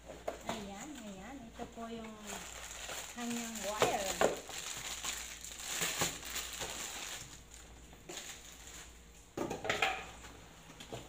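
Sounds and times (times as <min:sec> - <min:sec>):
plastic bag crinkling: 0:00.5 - 0:09.1.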